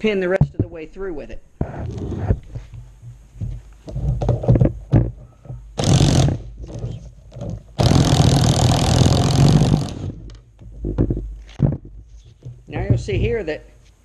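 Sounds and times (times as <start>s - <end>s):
cordless impact driver hammering: 5.8s - 6.5s, 7.8s - 10.4s.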